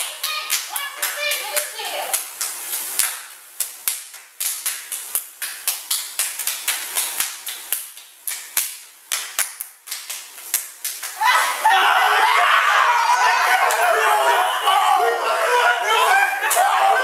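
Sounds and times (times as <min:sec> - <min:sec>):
hands clapping and slapping: 0:00.0 - 0:11.5, 0:13.6 - 0:13.9.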